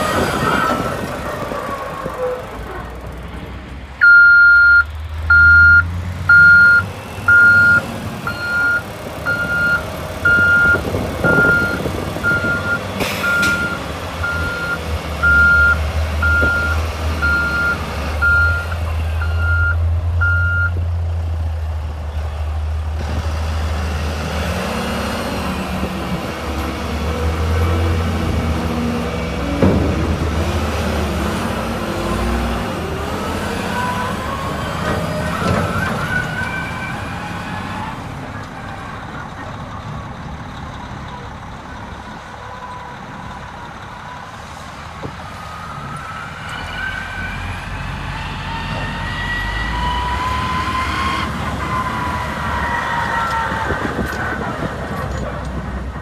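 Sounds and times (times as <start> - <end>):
reversing alarm beeping: 4.0 - 20.7.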